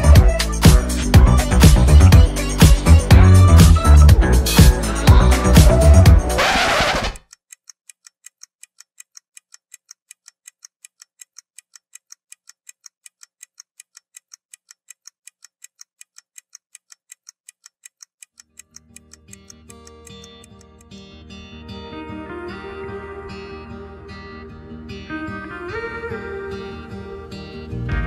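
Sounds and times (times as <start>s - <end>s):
loud music: 0.0s - 7.2s, 26.7s - 28.0s
clock ticking: 0.0s - 21.6s
soft guitar music: 19.3s - 28.0s.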